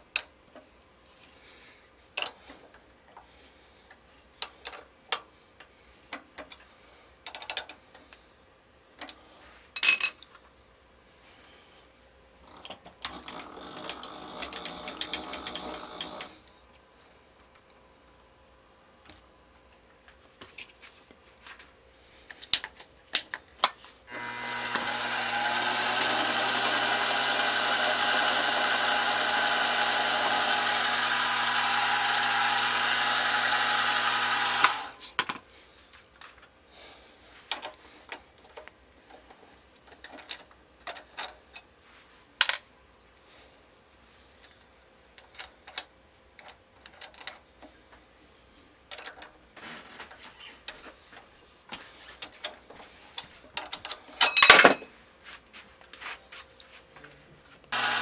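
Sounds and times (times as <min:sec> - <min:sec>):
milling machine spindle whine: 0:24.1 - 0:35.0, 0:57.8 - 0:58.0.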